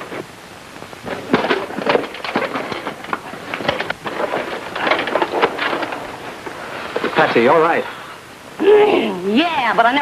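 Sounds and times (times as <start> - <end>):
soundtrack hiss: 0.0 - 10.0
knocks and clatters: 1.0 - 7.3.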